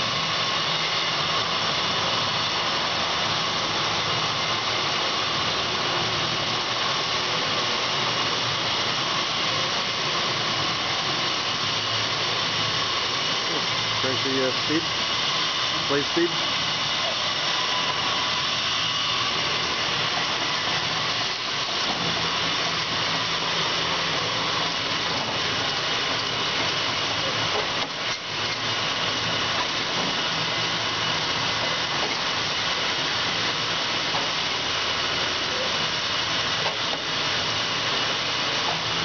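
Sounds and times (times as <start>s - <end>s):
band saw running: 0.0s - 39.0s.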